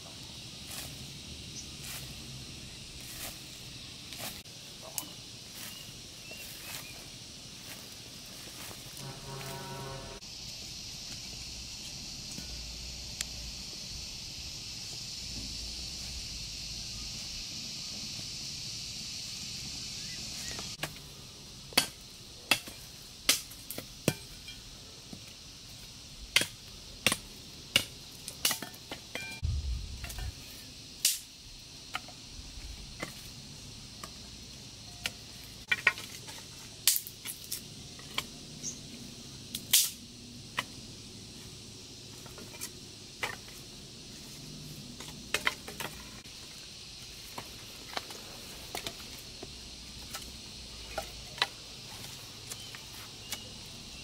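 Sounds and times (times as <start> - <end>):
steady high hiss: 0.0 - 54.0
short low thump: 29.4 - 30.4.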